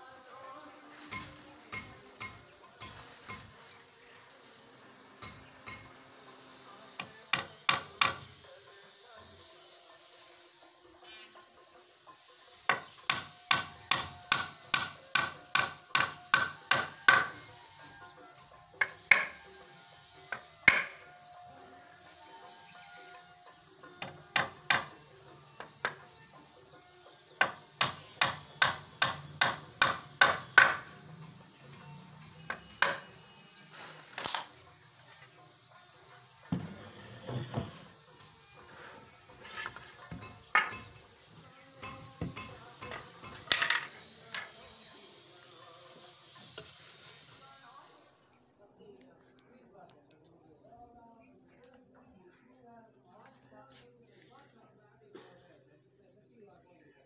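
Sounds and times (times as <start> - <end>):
hammer striking plywood frame: 12.7 - 17.4, 27.4 - 30.9.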